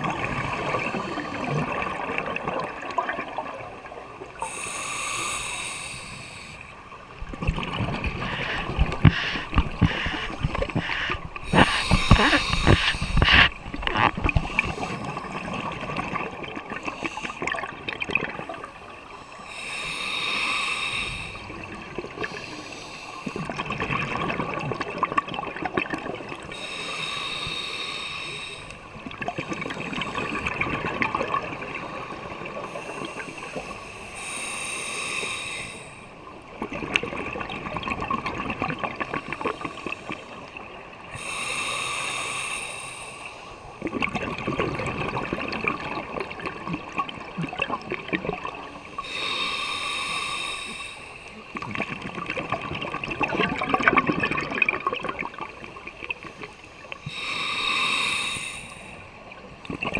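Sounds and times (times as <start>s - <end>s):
hissing regulator inhale: 4.4s - 6.8s, 8.1s - 15.4s, 19.1s - 21.5s, 22.2s - 23.5s, 26.4s - 28.8s, 32.7s - 36.2s, 41.1s - 43.7s, 48.8s - 51.6s, 56.4s - 59.4s
bubbling exhale underwater: 7.2s - 18.7s, 23.2s - 26.8s, 43.8s - 49.4s, 51.5s - 56.4s, 59.6s - 59.9s.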